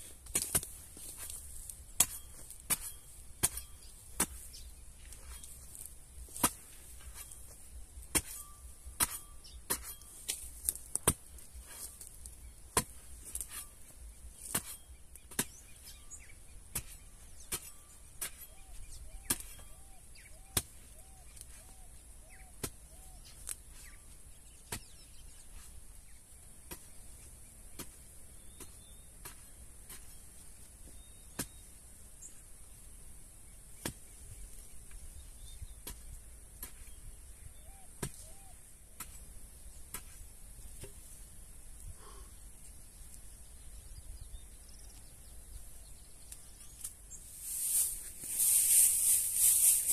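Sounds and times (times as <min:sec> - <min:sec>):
hoe chopping into soil: 0:00.1 - 0:16.0, 0:16.7 - 0:21.8, 0:22.5 - 0:25.8, 0:26.5 - 0:31.7, 0:33.7 - 0:34.2, 0:34.9 - 0:41.1.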